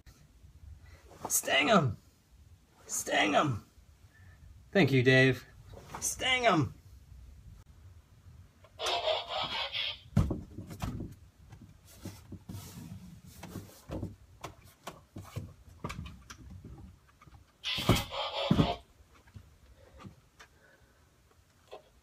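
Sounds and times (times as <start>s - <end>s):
feet thumping on wooden door: 10.1s - 12.5s.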